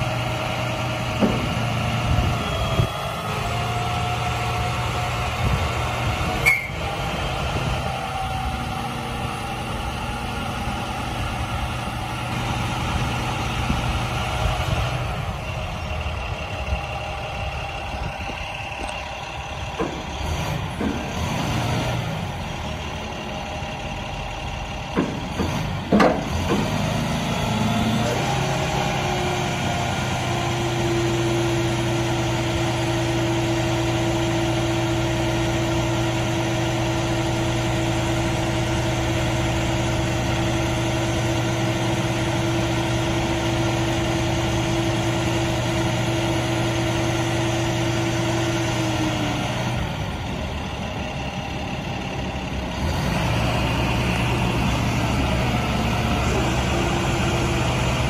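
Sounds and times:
truck diesel engine running: 0:00.0 - 0:58.0
sharp knocks: 0:01.2 - 0:01.6, 0:24.9 - 0:26.8.

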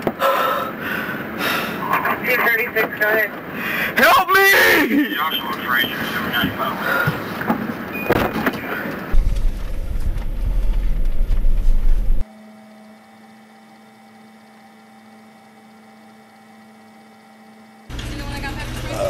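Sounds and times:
noise from back seat: 0:04.3 - 0:12.3
loud low rumble in car cabin: 0:08.9 - 0:12.2.

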